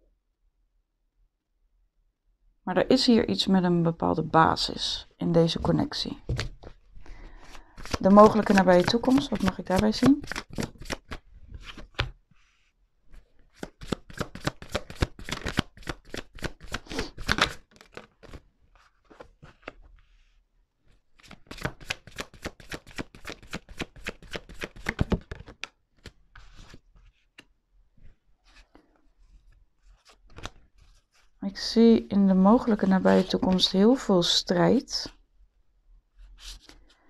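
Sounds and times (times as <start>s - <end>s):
cards being shuffled: 6.2s - 12.2s, 13.1s - 20.2s, 21.2s - 31.3s, 32.6s - 33.7s.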